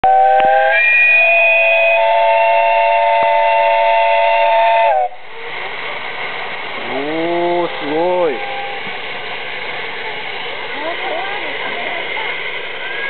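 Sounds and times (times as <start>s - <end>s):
steam locomotive whistle: 0.0s - 5.2s, 7.6s - 8.9s
steam hiss: 0.0s - 13.0s.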